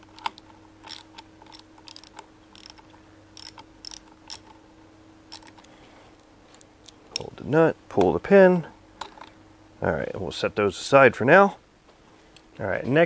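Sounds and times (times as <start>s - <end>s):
ratchet clicking: 0.1s - 2.8s, 3.4s - 4.5s, 5.3s - 5.7s.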